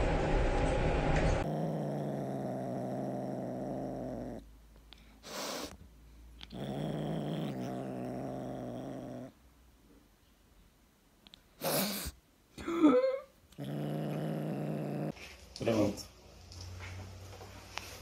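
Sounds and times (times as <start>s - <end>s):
kitten growling: 1.4s - 5.8s, 6.4s - 9.4s, 13.5s - 15.2s
kitten hissing breath: 4.9s - 5.8s.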